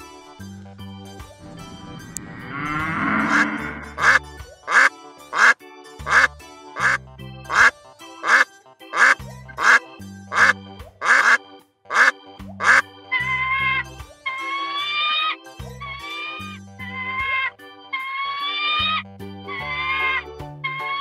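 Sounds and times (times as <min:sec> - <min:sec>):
background music: 0:00.0 - 0:21.0
ducks quacking: 0:02.9 - 0:12.9.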